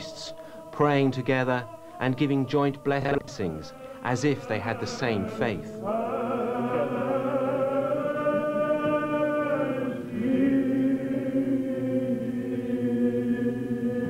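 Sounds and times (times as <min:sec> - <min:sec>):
church choir chanting: 0:00.0 - 0:14.0.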